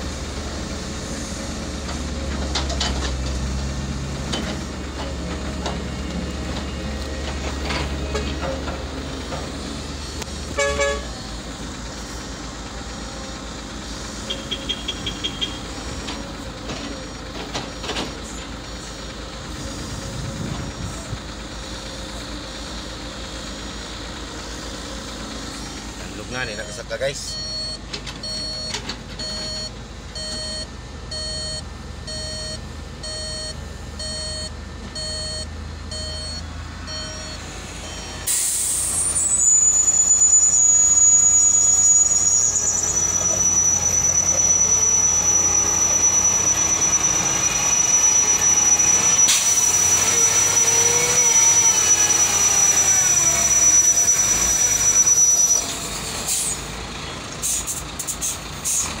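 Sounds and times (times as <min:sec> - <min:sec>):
truck engine: 0:00.0 - 0:59.0
truck reversing alarm beeps: 0:00.1 - 0:56.7
high steady whistle: 0:38.0 - 0:46.2.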